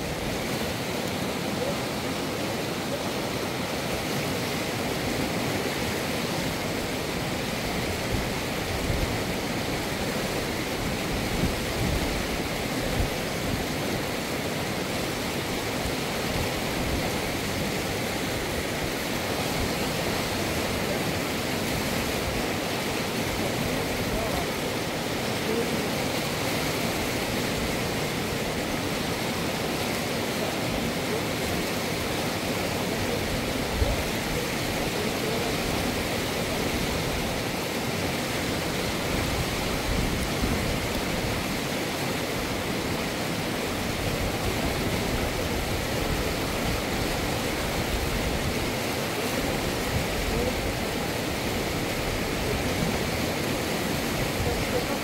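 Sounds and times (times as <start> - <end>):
river water rushing: 0.0 - 55.0.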